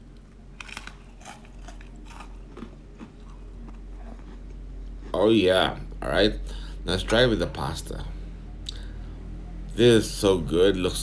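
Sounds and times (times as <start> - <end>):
person chewing crunchy bread: 0.0 - 6.0.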